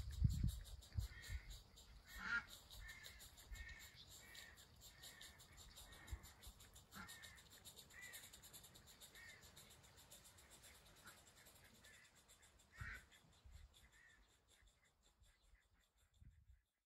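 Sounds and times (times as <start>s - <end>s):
short bird calls: 0.9s - 16.1s.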